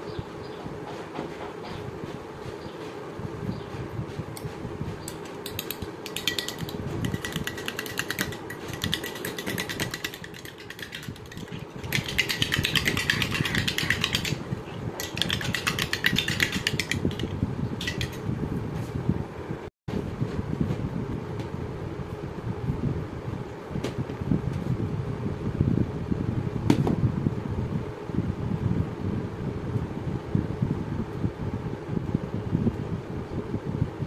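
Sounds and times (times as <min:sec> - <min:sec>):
spoon clinking against glass bowl: 0:05.4 - 0:14.4, 0:15.0 - 0:18.2.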